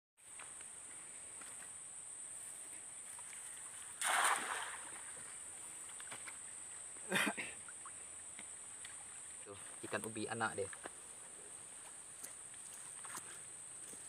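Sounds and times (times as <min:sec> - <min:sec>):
high insect drone: 0:00.2 - 0:14.0
net splashing on water: 0:03.6 - 0:05.2.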